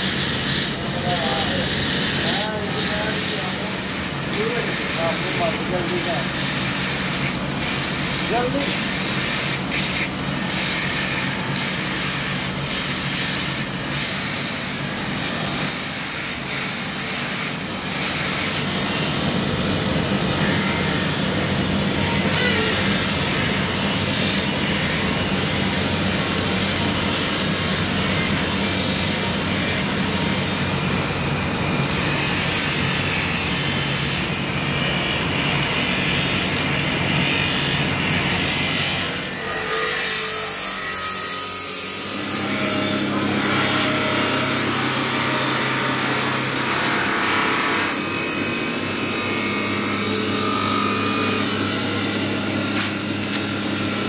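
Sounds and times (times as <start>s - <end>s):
steel grinding on grinding wheel: 0.0s - 34.3s, 38.5s - 54.0s.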